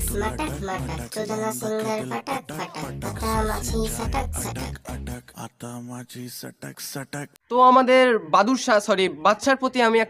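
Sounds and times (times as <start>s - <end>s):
heavy bass beat: 0.0s - 1.0s, 2.9s - 4.7s
pop remix song: 0.0s - 9.4s.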